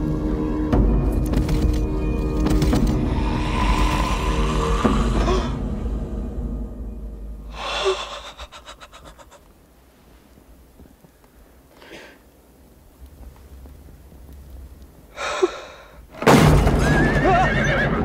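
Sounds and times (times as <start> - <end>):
loud dramatic score: 2.5 - 9.4
faint breathing: 3.0 - 6.6, 7.4 - 10.4, 11.6 - 12.3, 15.1 - 16.1
man gasping: 7.5 - 9.5.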